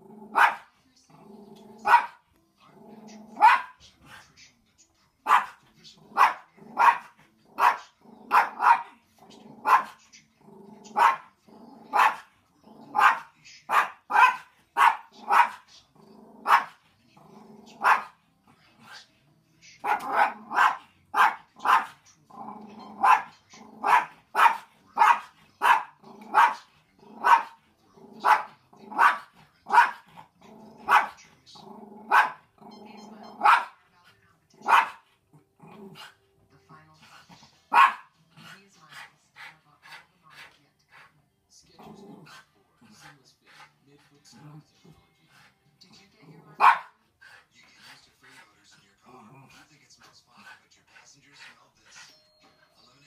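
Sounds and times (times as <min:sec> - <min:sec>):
dog barking: 0:00.2 - 0:00.7, 0:01.7 - 0:02.2, 0:03.3 - 0:03.8, 0:05.2 - 0:09.0, 0:09.6 - 0:10.0, 0:10.8 - 0:15.7, 0:16.4 - 0:16.8, 0:17.7 - 0:18.2, 0:19.8 - 0:22.0, 0:22.8 - 0:31.2, 0:31.8 - 0:33.8, 0:34.6 - 0:35.1, 0:37.7 - 0:38.1, 0:46.6 - 0:47.0.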